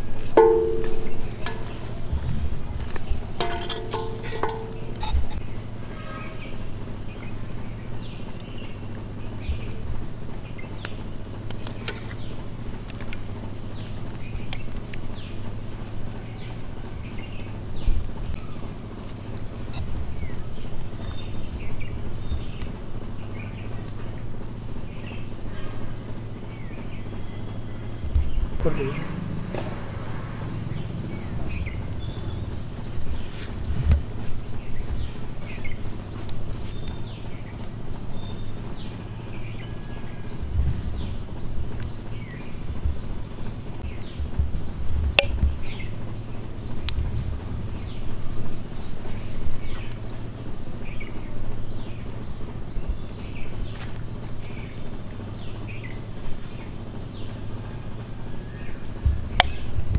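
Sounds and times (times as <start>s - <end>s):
low rumbling bumps on microphone: 0.0s - 5.6s, 28.0s - 35.8s, 40.3s - 49.4s, 59.0s - 59.9s
lower chirps: 0.0s - 11.1s, 13.7s - 59.8s.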